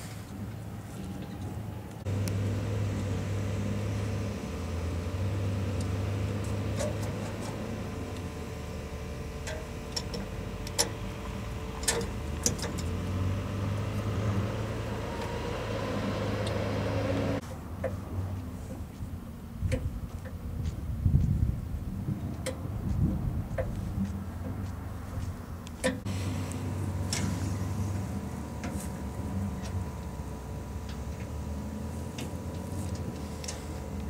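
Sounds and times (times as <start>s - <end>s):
engine running steadily: 0.0s - 34.0s
metal clicks and clanks: 9.4s - 11.0s, 11.8s - 12.9s.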